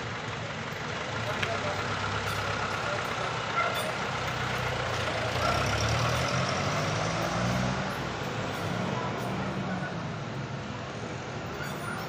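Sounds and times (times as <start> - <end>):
traffic noise: 0.0 - 12.0
vehicle engine pulling away: 0.0 - 12.0.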